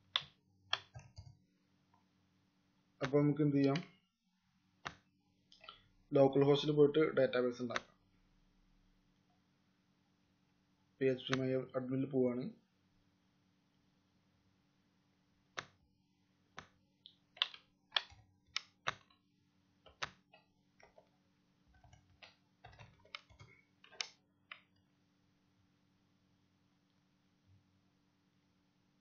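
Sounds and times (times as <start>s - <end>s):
mouse clicks: 4.8s - 5.8s, 15.6s - 15.8s, 16.6s - 19.1s, 19.9s - 21.1s, 21.8s - 24.7s
keyboard keystrokes: 17.4s - 19.1s, 21.8s - 24.2s.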